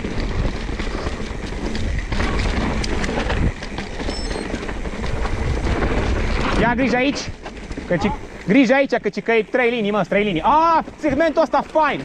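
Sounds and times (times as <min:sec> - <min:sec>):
mountain bike rattling over trail: 0:00.0 - 0:12.0
high squeak: 0:04.0 - 0:04.6.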